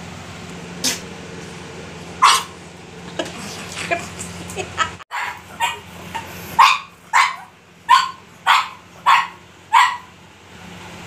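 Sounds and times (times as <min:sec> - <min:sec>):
puppy barking: 0:02.2 - 0:02.6, 0:05.1 - 0:10.2.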